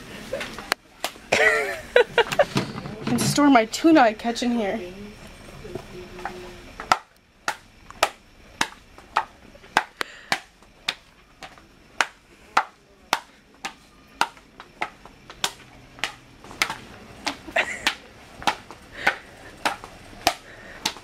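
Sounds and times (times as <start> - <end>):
swim flippers slapping tile floor: 6.8 - 21.0.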